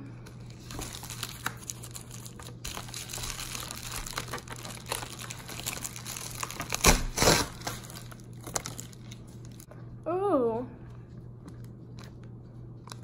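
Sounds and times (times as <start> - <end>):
plastic packaging crinkling: 0.2 - 9.7.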